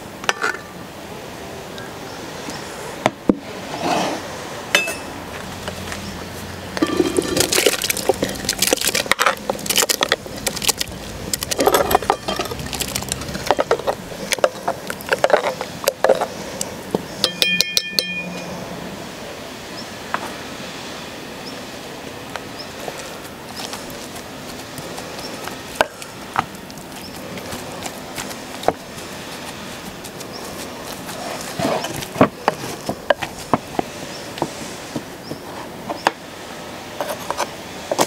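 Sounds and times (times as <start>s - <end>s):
spoon scraping metal pot: 6.8s - 8.5s
metallic clinks: 17.2s - 18.5s.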